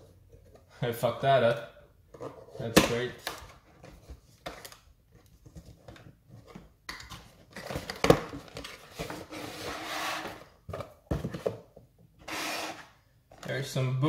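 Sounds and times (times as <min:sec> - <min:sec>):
cardboard scraping and rubbing: 0:08.7 - 0:10.5, 0:12.2 - 0:13.0.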